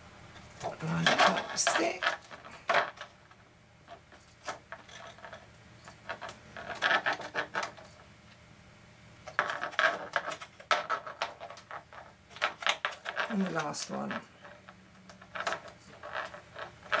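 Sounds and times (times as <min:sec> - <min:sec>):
plastic sheet crinkling and clicking: 0:09.3 - 0:17.0.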